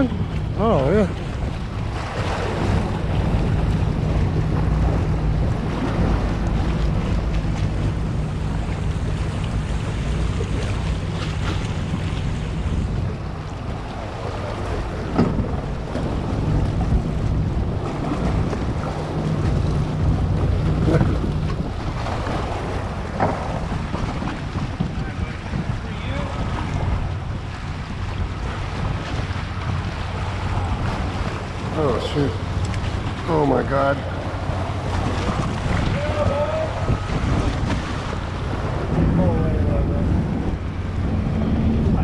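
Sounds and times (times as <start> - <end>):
outboard motor humming: 0.0 - 42.0
water splashing along hull: 0.0 - 42.0
wind buffeting microphone: 0.0 - 42.0.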